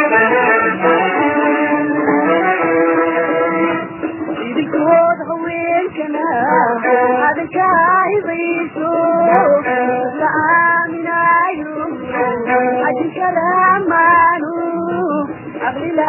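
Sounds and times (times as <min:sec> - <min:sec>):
instrumental accompaniment: 0:00.0 - 0:16.0
person singing wavering melody: 0:06.2 - 0:15.9.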